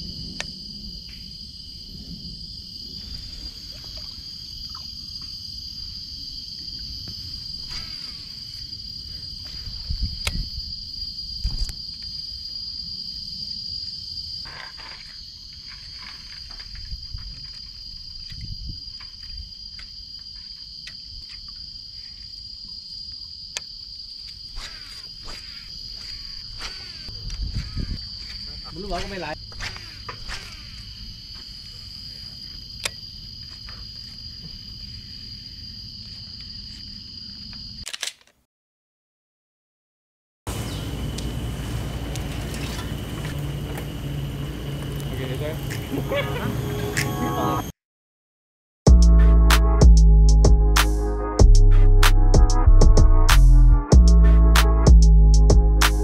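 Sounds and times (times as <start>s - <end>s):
low rumble of wind: 0.0s - 7.6s, 8.7s - 14.2s, 15.7s - 19.8s, 27.1s - 29.5s
insects droning high-pitched: 0.0s - 37.8s, 40.5s - 47.7s.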